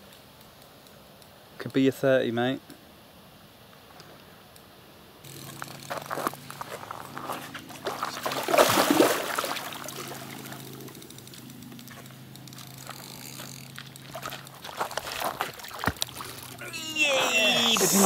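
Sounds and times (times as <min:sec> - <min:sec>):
water lapping: 0:06.0 - 0:10.9, 0:12.7 - 0:18.0
fish splashing at surface: 0:07.8 - 0:10.6.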